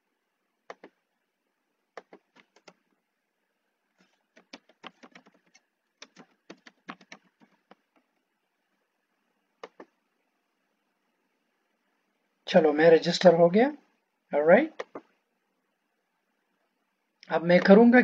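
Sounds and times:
faint keyboard typing: 0.6 - 1.0, 1.9 - 2.9, 3.9 - 8.3, 9.6 - 10.0, 14.7 - 15.2.

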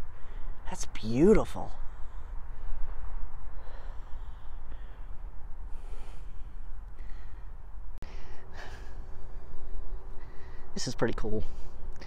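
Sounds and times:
wind buffeting microphone: 0.0 - 8.0
soft breaths close to mic: 1.8 - 12.0.

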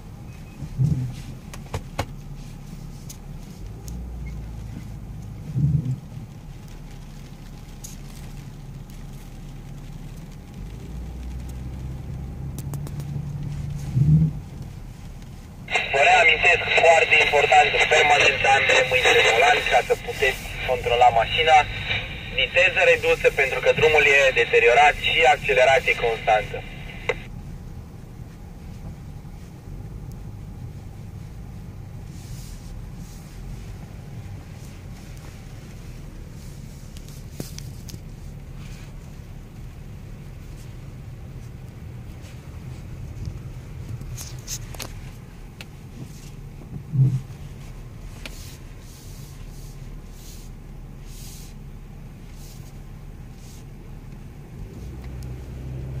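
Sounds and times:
car engine and tyre hum: 0.0 - 15.7, 18.0 - 56.0
light ticks: 55.0 - 55.4.

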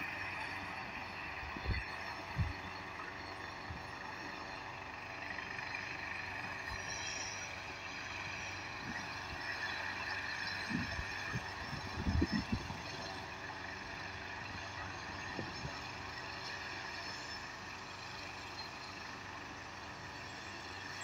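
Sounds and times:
helicopter rotor rush: 0.0 - 21.0
helicopter turbine whine: 0.0 - 21.0.

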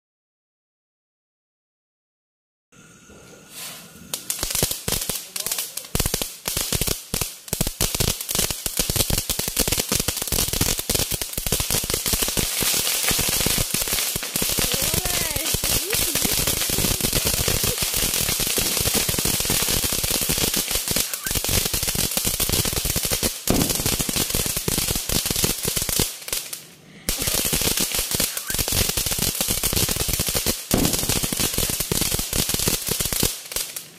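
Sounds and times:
crackling fireworks: 3.0 - 33.9.

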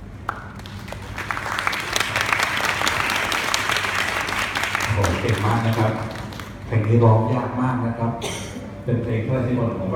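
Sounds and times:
audience applauding: 0.3 - 6.7.

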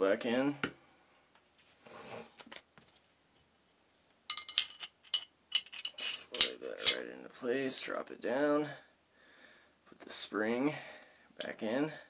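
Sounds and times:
metal parts clicking and clinking: 4.3 - 7.0.

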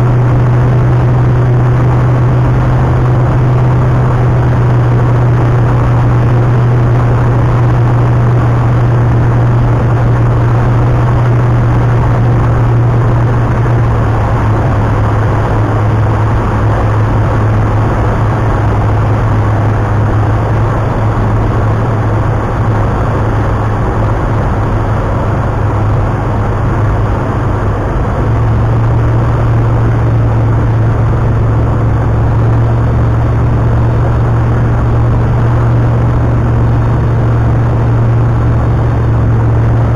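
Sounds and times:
aircraft engine drone: 0.0 - 39.9.

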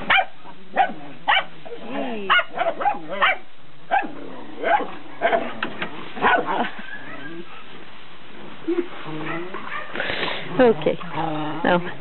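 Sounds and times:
puppies barking and yipping: 0.0 - 1.6, 2.3 - 7.8, 9.2 - 11.2.

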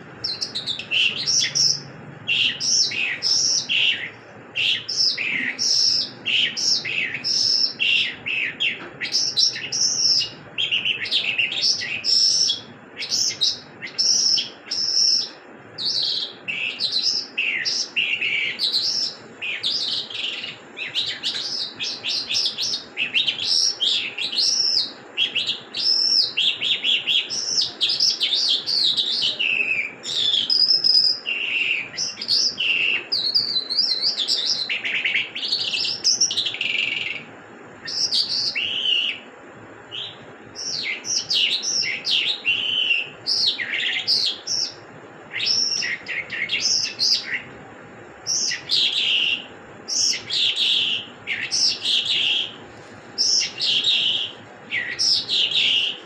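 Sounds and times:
skylark singing: 0.0 - 39.2, 39.9 - 47.5, 53.2 - 56.0.

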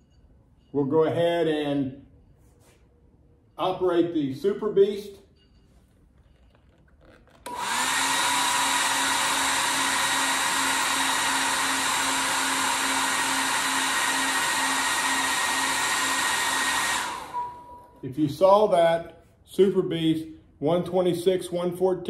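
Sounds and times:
load tester fan-like rush and hum: 6.5 - 18.1.

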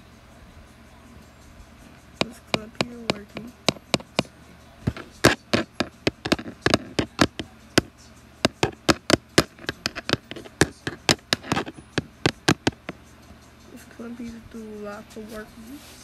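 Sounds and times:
sharp taps: 2.2 - 4.3, 4.9 - 13.0.

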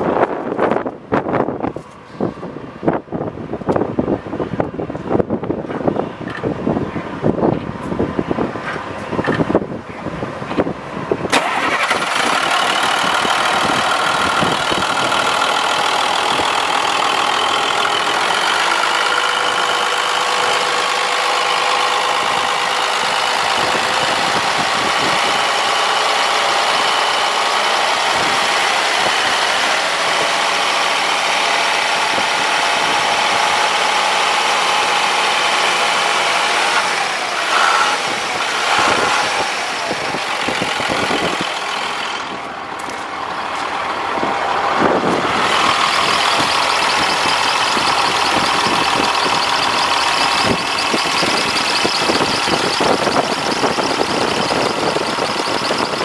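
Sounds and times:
diesel engine idling: 0.0 - 56.0
high whining tones: 34.8 - 42.9, 44.9 - 56.0.

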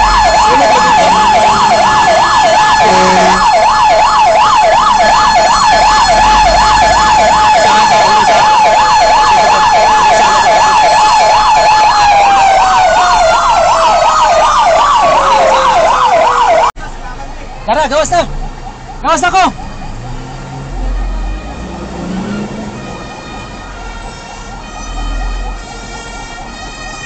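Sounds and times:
steady siren tone sliding down: 0.0 - 16.7, 18.6 - 25.9
fast yelping siren: 0.0 - 16.8.

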